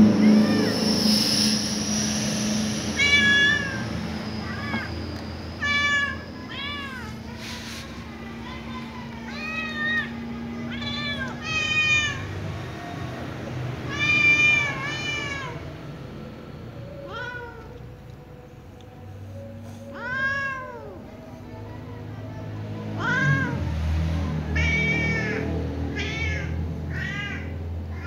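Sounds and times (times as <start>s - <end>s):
kitten meowing: 3.0s - 3.8s, 4.4s - 4.9s, 5.6s - 7.4s, 8.6s - 12.3s.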